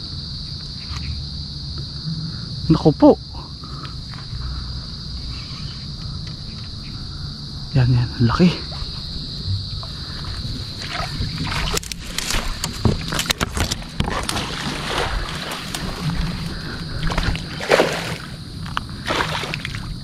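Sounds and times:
high insect trill: 0.0 - 20.0
fish thrashing and splashing: 9.8 - 19.9.

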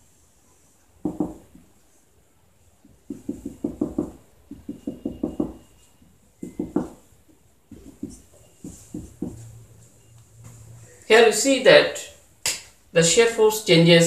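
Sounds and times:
marker pen tapping on whiteboard: 1.0 - 1.7, 2.8 - 5.7, 6.4 - 9.5
pen knocking on whiteboard: 1.0 - 1.7, 2.8 - 5.7, 6.4 - 9.4.

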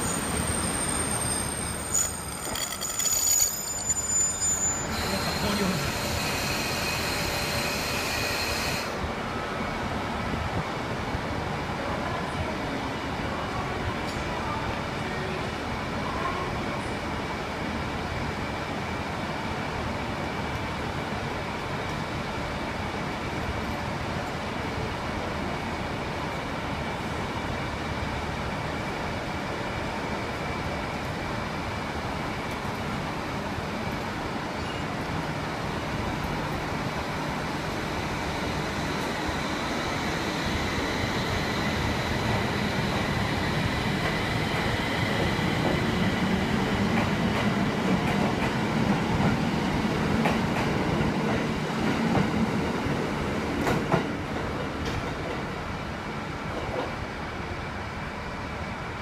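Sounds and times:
high-pitched wheel squeals: 0.0 - 8.9
diesel railcar engine rumbling: 0.0 - 59.0.

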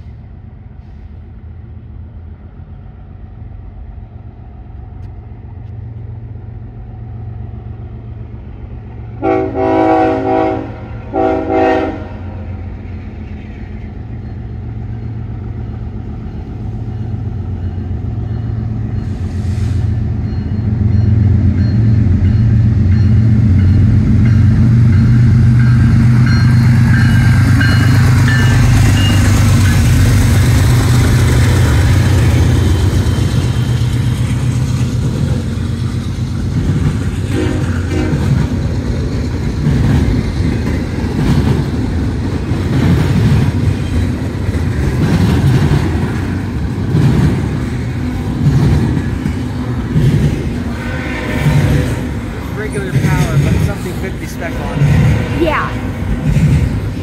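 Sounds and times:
diesel locomotive engines rumbling: 0.0 - 57.0
train air horn blasts: 9.2 - 12.5, 37.3 - 38.4
wheels on rails: 12.8 - 57.0.

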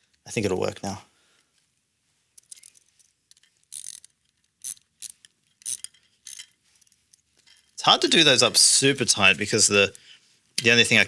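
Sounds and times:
metallic clicks of nuts tightened: 2.4 - 7.8.

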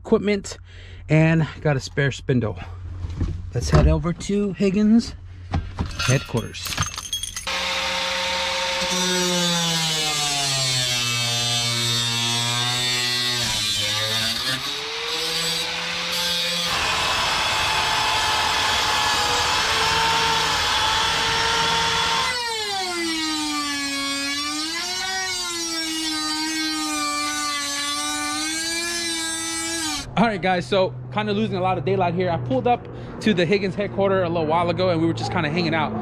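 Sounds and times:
power tool whining: 7.4 - 30.1
angle grinder grinding steel: 7.5 - 30.1.

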